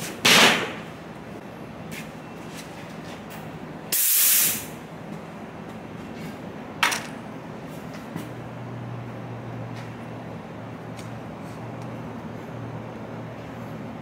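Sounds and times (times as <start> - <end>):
steady background hum: 0.0 - 14.0
short bursts of hissing: 3.9 - 4.8.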